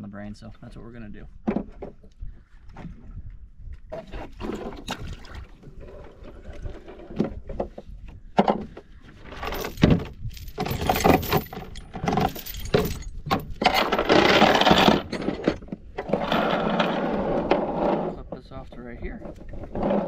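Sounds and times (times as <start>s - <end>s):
metal clinks and knocks: 9.3s - 16.9s.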